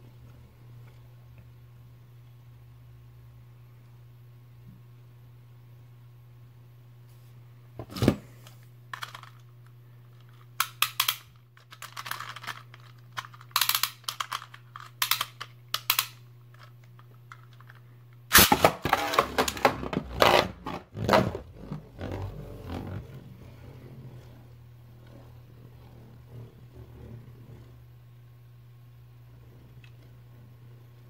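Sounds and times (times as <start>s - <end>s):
plastic clicks and rattles: 10.2s - 17.8s.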